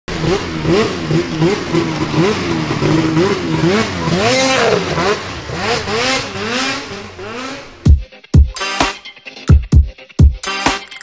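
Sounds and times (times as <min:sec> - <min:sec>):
snowmobile engine revving: 0:00.1 - 0:07.9.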